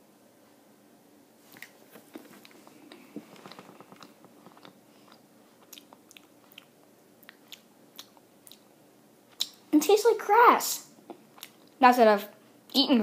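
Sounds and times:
sticky mouth clicks chewing: 0:01.6 - 0:08.7, 0:09.3 - 0:09.6, 0:11.0 - 0:11.8.

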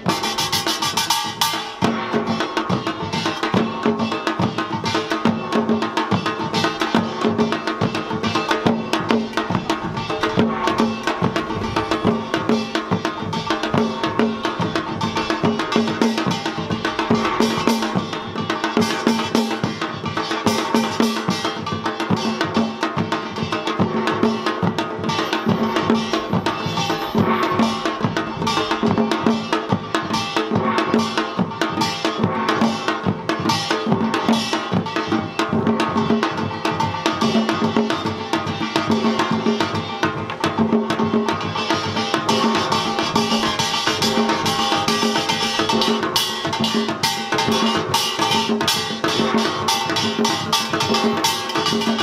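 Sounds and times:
hourglass drums beaten fast: 0:00.0 - 0:52.0
small gongs clanging: 0:41.3 - 0:52.0.

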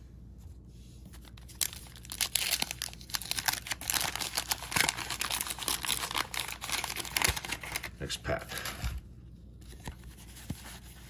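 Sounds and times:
wax paper wrapper tearing and crinkling: 0:01.2 - 0:09.0.

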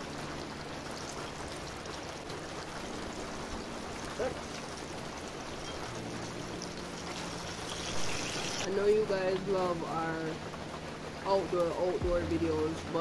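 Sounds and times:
chicken sizzling in hot oil: 0:07.1 - 0:08.7.

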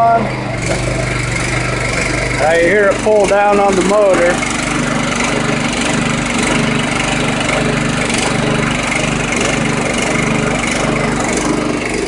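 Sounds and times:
small engine running: 0:00.0 - 0:12.0.

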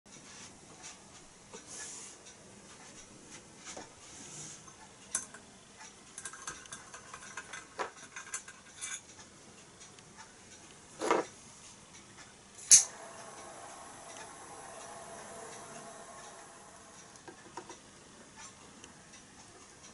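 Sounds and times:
small metal clicks and knocks: 0:04.7 - 0:12.9
butane torch lighting click: 0:12.6 - 0:17.8
torch flame hissing: 0:12.6 - 0:18.1.

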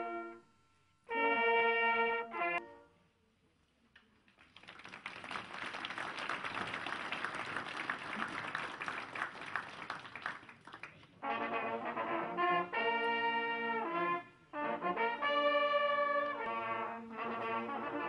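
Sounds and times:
brass chord: 0:00.0 - 0:03.0, 0:11.2 - 0:18.0
crowd applauding: 0:04.2 - 0:11.2.

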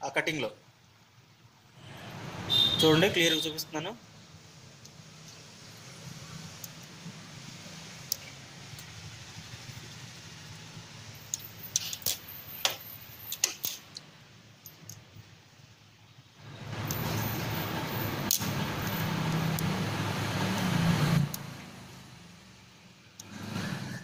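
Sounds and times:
small metal clicks: 0:11.3 - 0:15.1.

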